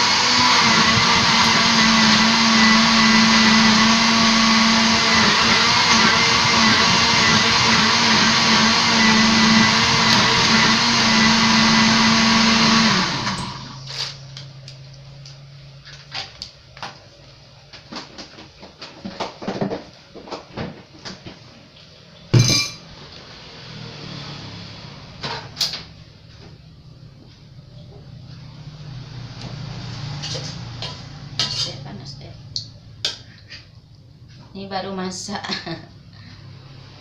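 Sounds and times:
electric blender running: 0.0s - 14.1s.

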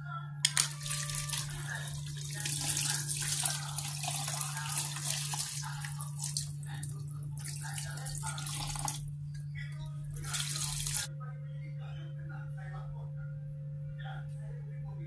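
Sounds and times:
tap water running into a sink: 0.5s - 9.0s, 10.1s - 11.1s
water splashing in a plastic bowl: 0.5s - 9.0s, 10.1s - 11.1s.

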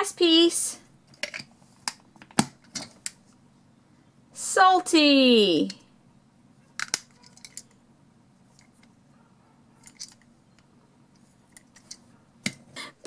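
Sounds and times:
plastic toy clicks and knocks: 6.8s - 7.8s, 9.8s - 10.6s.

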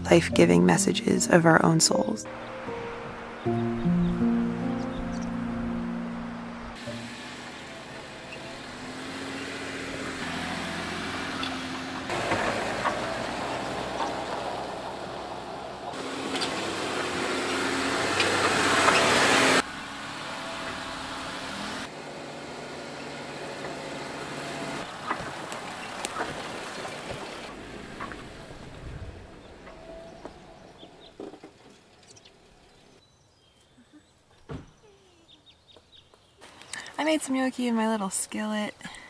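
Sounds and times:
car engine under load: 2.3s - 33.0s
tyres on dirt: 6.8s - 39.0s.

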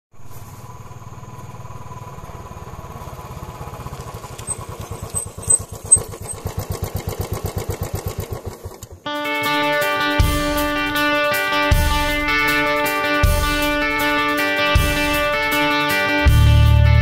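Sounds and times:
motorcycle engine passing by: 0.2s - 9.1s.

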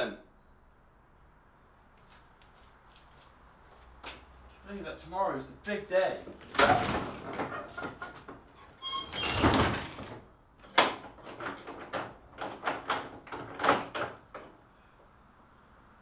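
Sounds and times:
sharp knocks and rattles: 6.2s - 14.6s
door hinges squeaking: 6.3s - 14.5s
wooden door swinging shut: 6.3s - 14.6s.

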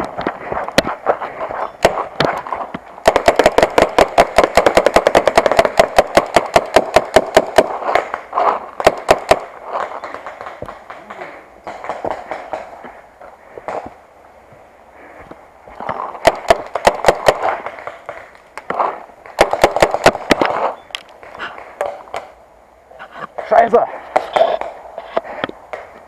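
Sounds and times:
paintball marker firing: 1.8s - 8.2s.

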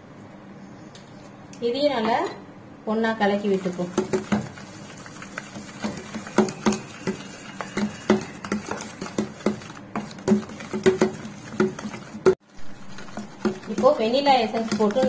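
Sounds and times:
spoon scraping metal bowl: 3.9s - 15.0s.

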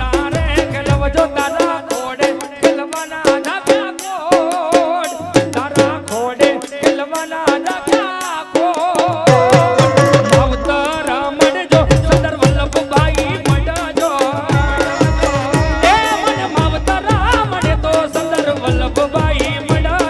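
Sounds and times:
hand drum strokes: 9.2s - 12.2s, 14.5s - 18.0s
wavering lead melody: 9.3s - 11.1s.

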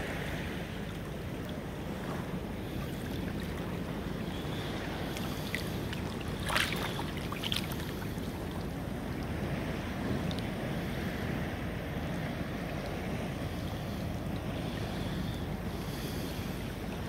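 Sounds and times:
water splashes from wading: 4.5s - 8.8s.

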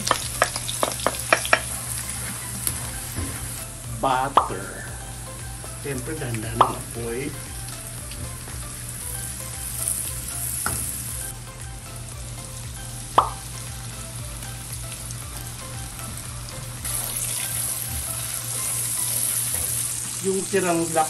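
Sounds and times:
onion and garlic sizzling in a wok: 0.0s - 21.0s
sharp knock on pan: 13.2s - 13.4s
sauce pouring into pan: 16.9s - 20.3s.

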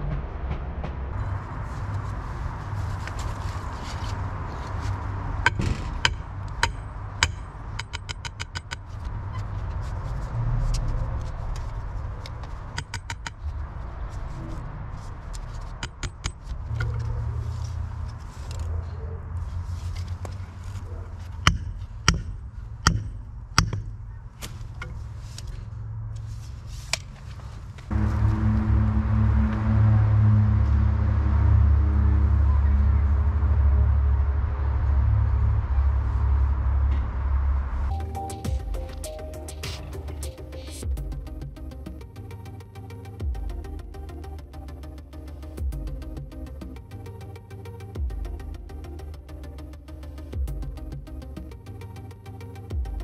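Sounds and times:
music: 0.0s - 2.0s, 37.9s - 53.0s
sledgehammer striking steel stake: 5.5s - 8.9s, 15.8s - 16.5s, 21.4s - 24.5s.

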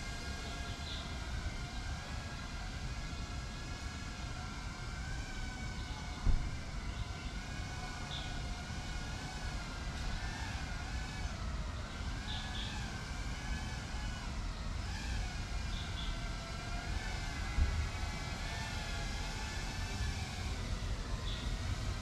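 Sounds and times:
wind rumble on microphone: 0.0s - 11.8s, 13.1s - 22.0s
quadcopter motors whining: 0.0s - 22.0s
thump: 6.2s - 6.6s.

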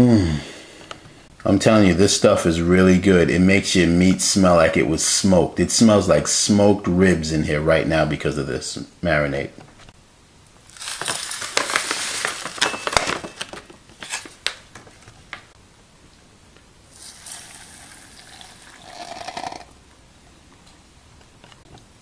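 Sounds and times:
paper packet crinkling: 10.6s - 15.5s
flakes pouring into pot: 10.7s - 12.8s, 16.9s - 19.7s
water pouring into pot: 16.9s - 19.7s.

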